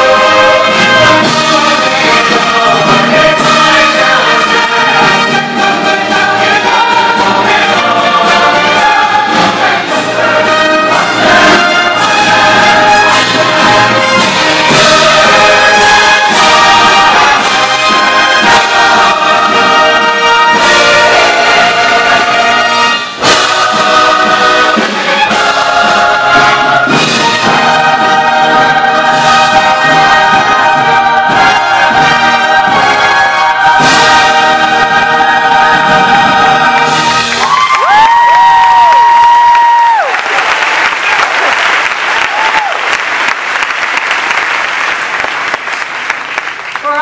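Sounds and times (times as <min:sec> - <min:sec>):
large choir singing: 0:00.0 - 0:37.6
orchestra with brass and strings: 0:00.0 - 0:47.0.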